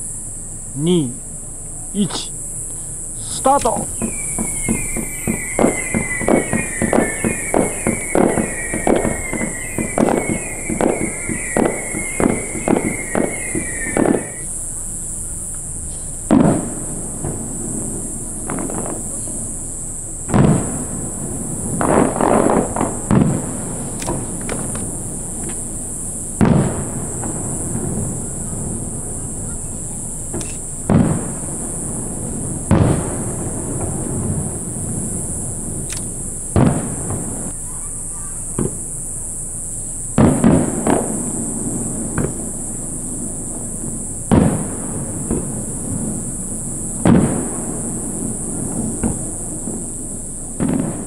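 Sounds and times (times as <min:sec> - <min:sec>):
rumble of small firework bursts: 0:00.0 - 0:51.0
fireworks booms: 0:03.2 - 0:37.7, 0:38.3 - 0:39.1, 0:40.1 - 0:51.0
faint firework pops: 0:03.3 - 0:14.5, 0:15.5 - 0:19.5, 0:20.3 - 0:21.1, 0:21.7 - 0:25.8, 0:26.4 - 0:28.6, 0:29.3 - 0:31.8, 0:32.6 - 0:34.7, 0:35.8 - 0:37.6, 0:38.5 - 0:38.9, 0:40.2 - 0:42.6, 0:44.3 - 0:46.2, 0:47.0 - 0:50.0, 0:50.6 - 0:51.0.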